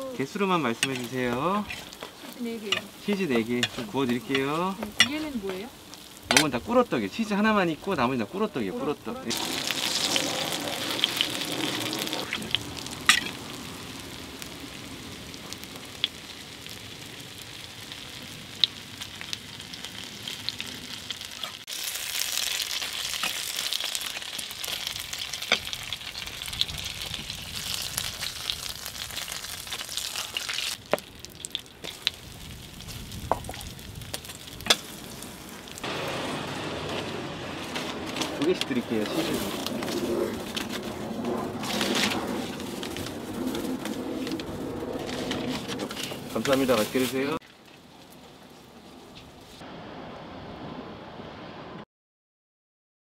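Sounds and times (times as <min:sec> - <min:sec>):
pancakes sizzling in oil: 0:00.2 - 0:36.2.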